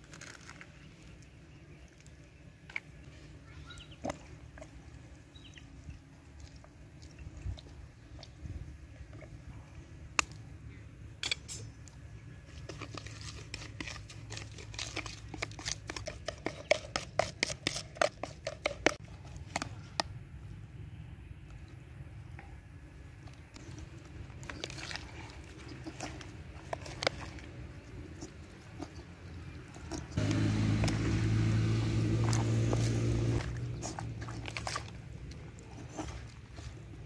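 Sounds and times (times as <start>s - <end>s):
metal spoon scraping plastic bowl: 12.5s - 19.7s.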